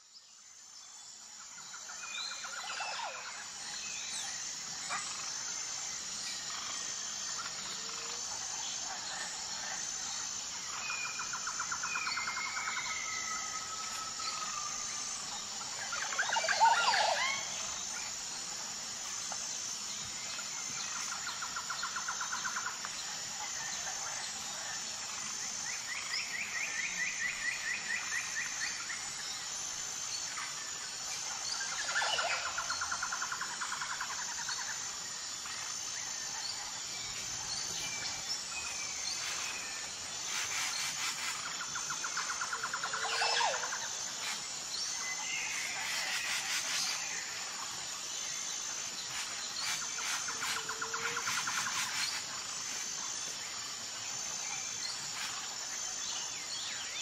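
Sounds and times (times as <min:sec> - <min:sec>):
high insect drone: 0:00.0 - 0:57.0.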